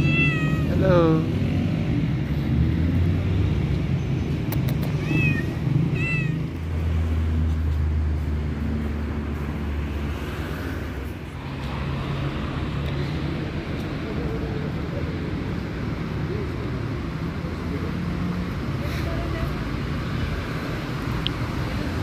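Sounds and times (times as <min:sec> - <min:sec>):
cat meowing: 0:00.0 - 0:00.8, 0:04.8 - 0:06.6
low rumble of city traffic: 0:00.0 - 0:22.0.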